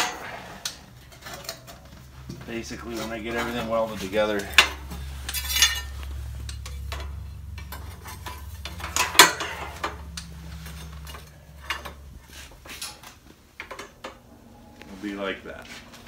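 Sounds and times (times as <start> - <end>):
low steady hum: 0.0 - 16.0
metal clinks and knocks: 4.3 - 14.2.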